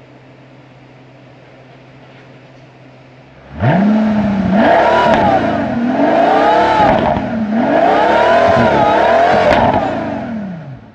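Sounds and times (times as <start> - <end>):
car engine revving: 3.3 - 10.9.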